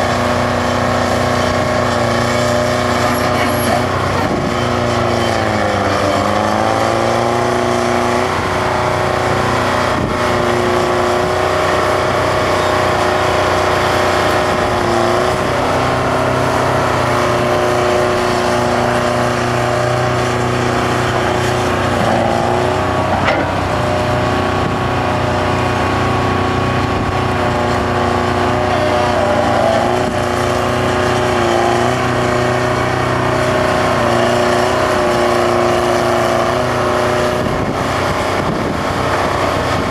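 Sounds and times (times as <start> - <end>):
diesel engine running under load: 0.0 - 39.9.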